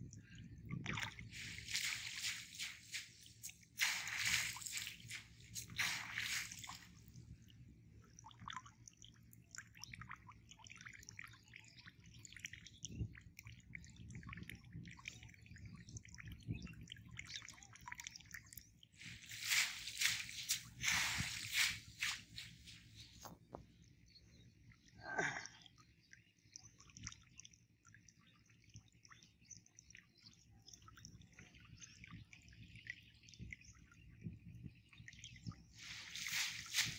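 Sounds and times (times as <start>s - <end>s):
water dripping and sloshing: 0.0s - 23.6s, 24.8s - 36.9s
water dripping and splashing: 0.7s - 7.3s, 17.2s - 23.4s, 35.4s - 36.9s.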